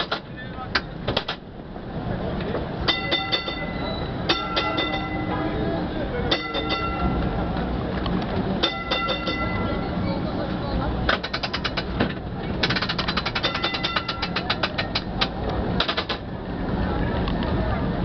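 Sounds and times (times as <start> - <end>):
crowd chatter: 0.0 - 18.0
low running rumble: 0.1 - 18.0
tram warning bell clanging: 2.8 - 7.7, 8.5 - 15.4.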